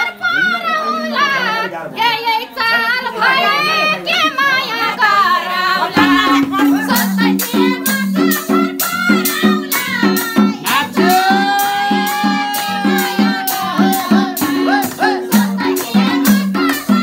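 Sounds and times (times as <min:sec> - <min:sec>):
person singing folk song: 0:00.0 - 0:17.0
percussion strikes: 0:05.9 - 0:17.0
repeated low instrumental notes: 0:06.0 - 0:07.7.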